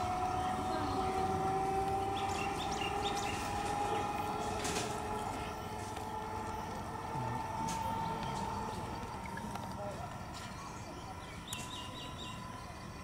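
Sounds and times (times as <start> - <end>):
train low rumble: 0.0 - 13.0
train whine rising in pitch: 0.0 - 13.0
bird chirps: 2.0 - 3.6, 10.3 - 12.9.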